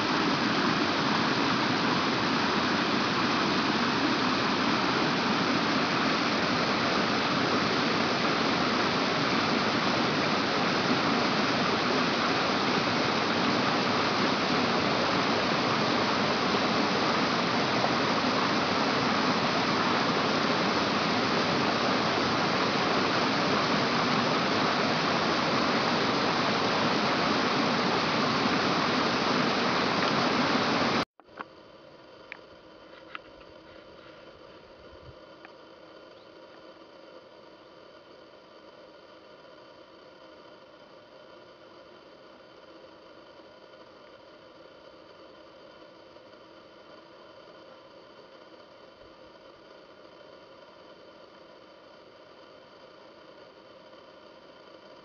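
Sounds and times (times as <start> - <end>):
running water rushing: 0.0 - 31.0.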